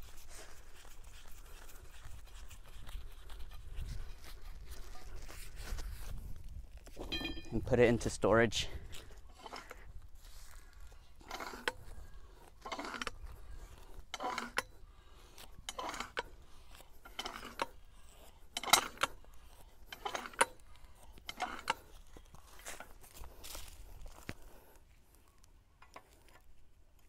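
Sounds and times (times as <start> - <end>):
metallic clank and scrape: 6.9 - 7.9, 18.5 - 19.2.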